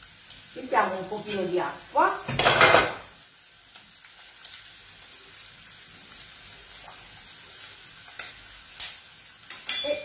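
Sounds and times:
meat sizzling in a pan: 0.0s - 10.0s.

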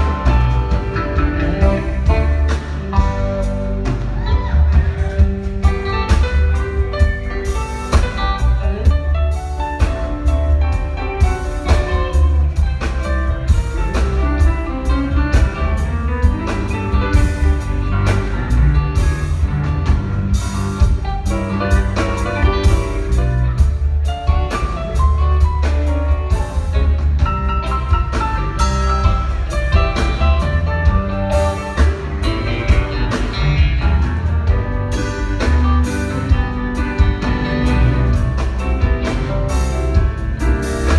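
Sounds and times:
booming bass and drums: 0.0s - 40.9s
live rock band playing: 0.0s - 40.9s.

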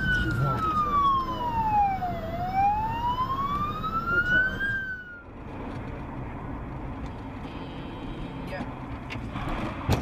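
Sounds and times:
ambulance siren wailing: 0.0s - 5.3s
car road noise: 0.0s - 10.0s.

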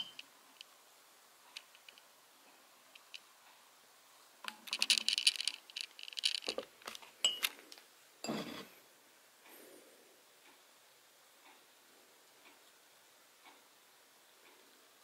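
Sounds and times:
teaspoon clinking against glass mug: 7.2s - 7.5s.

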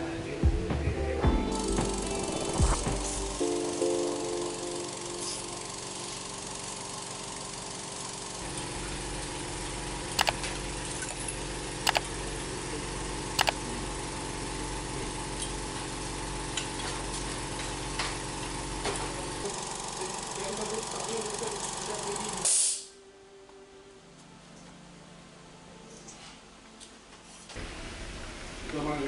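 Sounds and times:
steady low hum: 0.0s - 22.4s
mouse double clicks: 10.2s - 10.4s.

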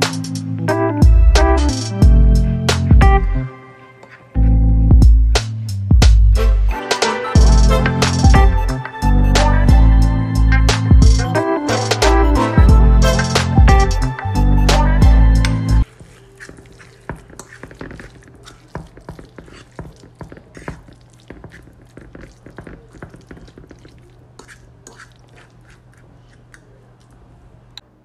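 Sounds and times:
background music: 0.0s - 17.1s
wet squelches of stirred food: 15.8s - 27.8s.

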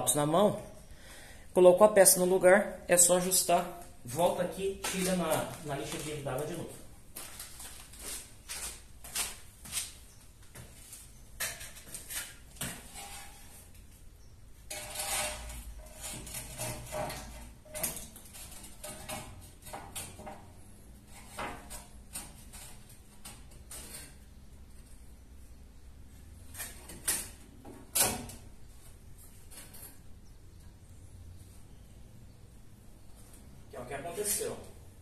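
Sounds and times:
tile scraping on wall: 11.4s - 13.9s, 14.7s - 24.3s.

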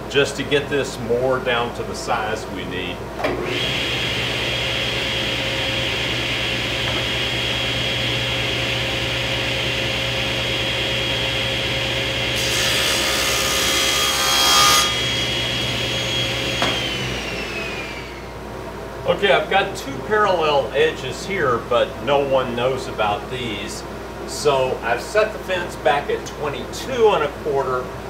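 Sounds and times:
table saw motor whine: 3.4s - 18.4s
saw cutting plywood: 12.3s - 18.2s.

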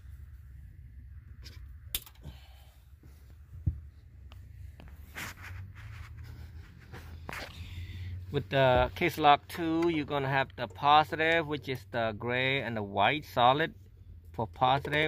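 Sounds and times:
low steady hum: 0.0s - 15.0s
soft clicks and rustles: 3.0s - 7.7s.

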